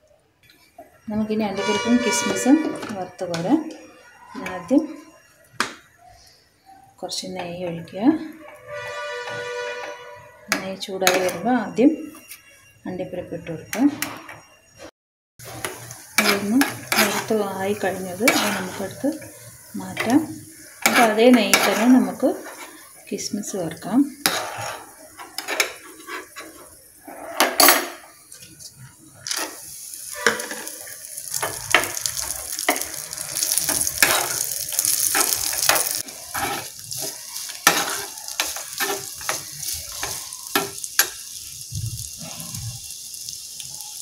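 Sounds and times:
raisins sizzling in hot fat: 0.6s - 13.9s, 14.8s - 44.0s
spoon clinking and scraping pan: 1.5s - 5.3s, 7.4s - 12.7s, 15.4s - 28.3s, 29.2s - 41.5s.

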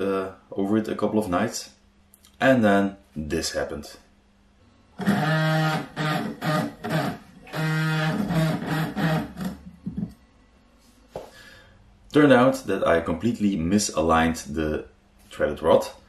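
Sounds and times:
electric guitar riff: 5.0s - 9.6s.

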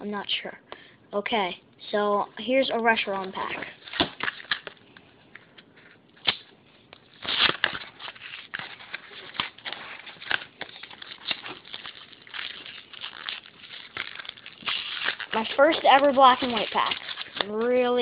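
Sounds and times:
plastic packaging crackling: 2.7s - 4.9s, 6.2s - 18.0s
packaging ripping: 3.1s - 4.8s, 6.2s - 18.0s.

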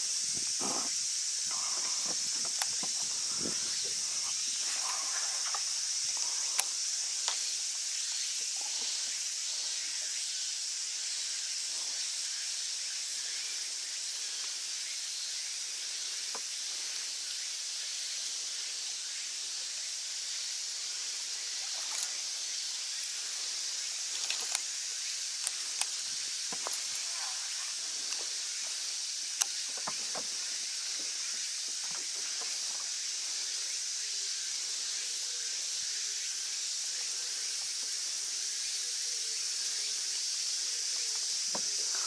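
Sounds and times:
high-pitched insect chorus: 0.0s - 42.0s.

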